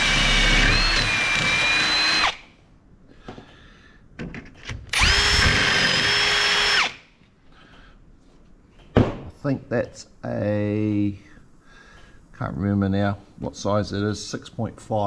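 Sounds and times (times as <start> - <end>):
power drill running: 0.0 - 2.4, 4.9 - 7.0.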